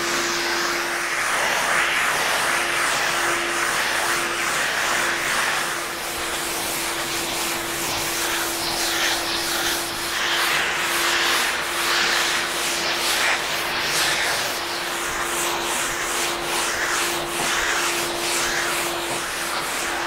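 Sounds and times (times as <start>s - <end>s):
shop vacuum droning: 0.0s - 20.0s
sanding board rasping on wood: 2.3s - 20.0s.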